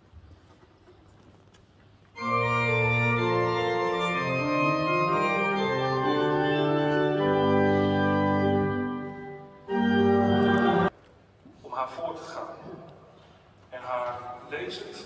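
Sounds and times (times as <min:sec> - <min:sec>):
church organ playing held chords: 0:02.2 - 0:10.9.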